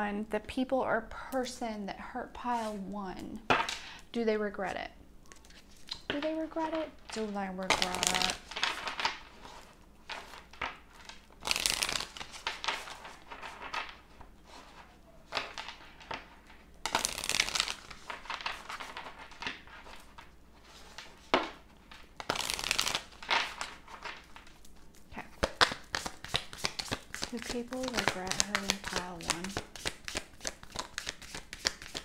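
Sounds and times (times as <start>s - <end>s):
cards being shuffled: 5.3s - 32.0s.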